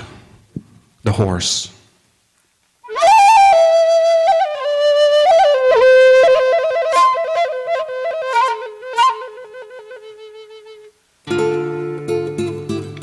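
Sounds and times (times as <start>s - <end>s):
flute playing slow melody: 2.8s - 12.1s.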